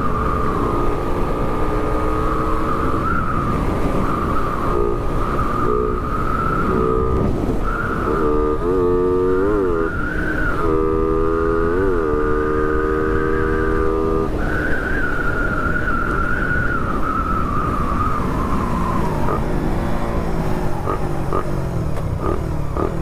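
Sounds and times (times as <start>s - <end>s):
motorcycle engine at high revs: 0.0s - 15.2s, 17.6s - 23.0s
wind rush: 3.0s - 8.6s.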